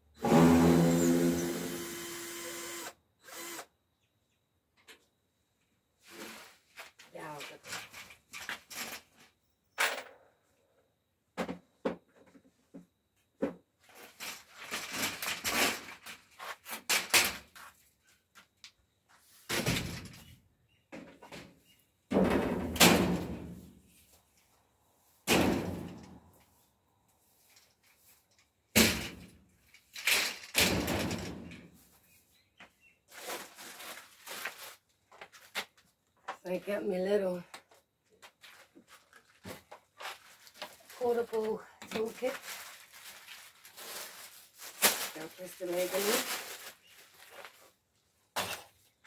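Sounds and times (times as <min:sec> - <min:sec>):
scraping and rustling: 0:33.0 - 0:35.8, 0:38.2 - 0:41.4, 0:42.0 - 0:47.8.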